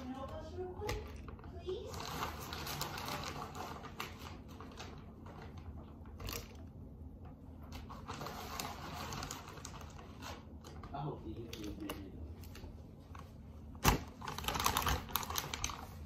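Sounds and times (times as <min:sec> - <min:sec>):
clicking and rustling of handled items: 0:07.7 - 0:16.0.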